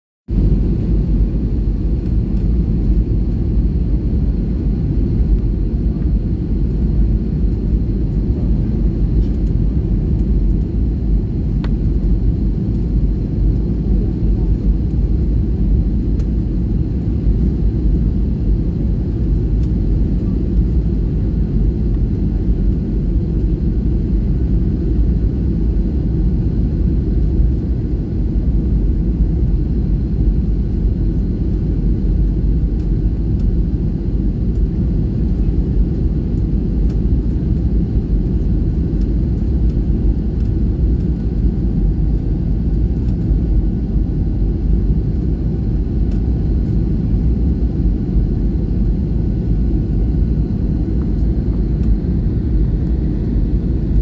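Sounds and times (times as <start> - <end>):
airliner cabin engine rumble: 0.3 - 54.0.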